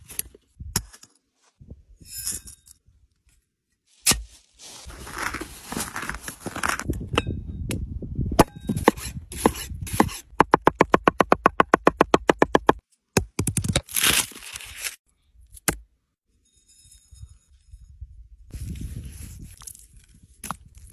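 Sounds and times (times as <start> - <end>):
cleaver chopping on wooden board: 8.4 - 13.5.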